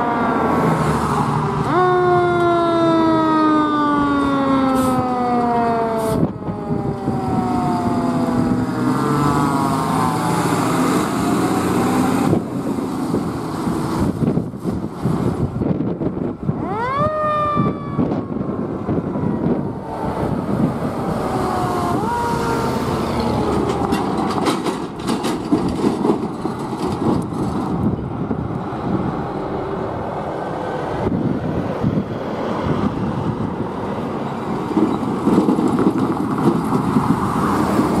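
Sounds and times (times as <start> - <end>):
fire engine mechanical siren: 0.0 - 12.4, 16.4 - 25.0
fire engine rumble: 0.0 - 38.0
passing traffic: 0.0 - 38.0.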